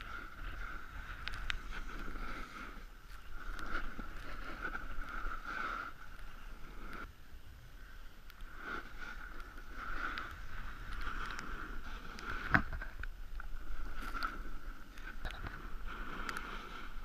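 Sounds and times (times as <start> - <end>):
snowboard scraping over snow: 0.0 - 7.0.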